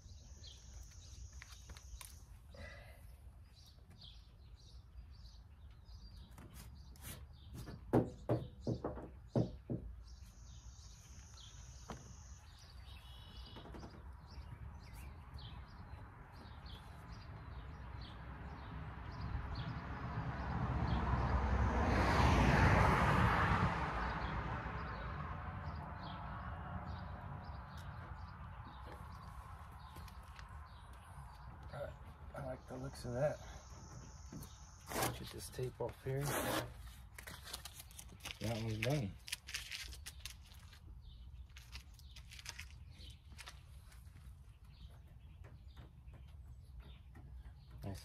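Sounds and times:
birds chirping: 0.0s - 21.1s, 24.0s - 48.0s
sharp knocks: 7.6s - 9.9s.

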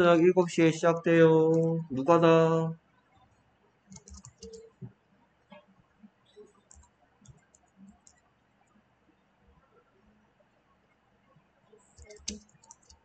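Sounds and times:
keyboard typing: 3.9s - 4.9s, 6.4s - 8.2s, 11.9s - 13.0s.

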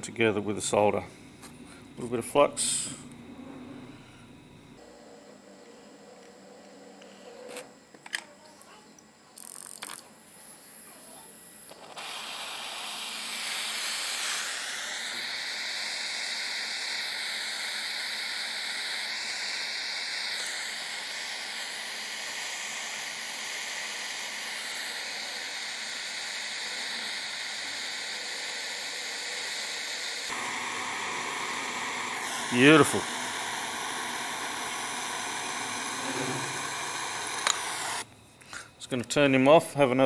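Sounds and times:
gas torch flame hissing: 9.4s - 38.1s.

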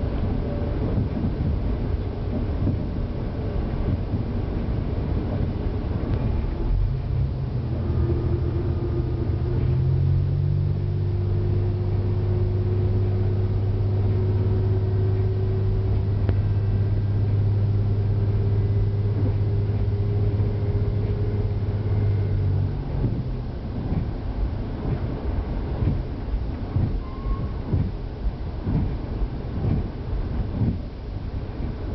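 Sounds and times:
diesel engine running: 0.0s - 31.9s
wheels rumbling on rails: 0.0s - 31.9s.

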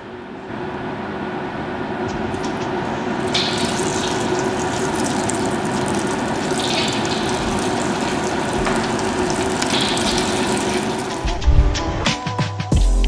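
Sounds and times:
chicken deep-frying in oil: 2.3s - 11.3s.

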